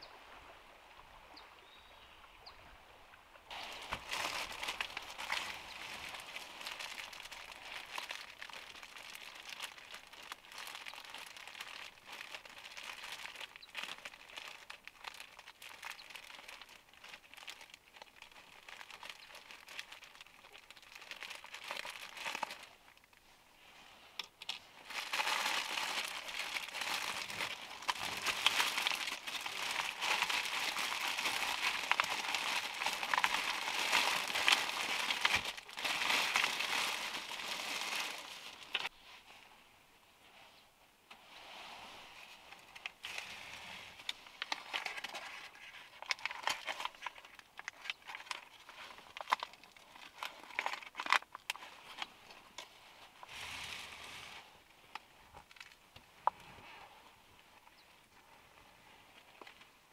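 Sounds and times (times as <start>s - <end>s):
plastic bag crinkling: 3.5s - 23.0s, 24.8s - 38.9s, 44.4s - 51.6s.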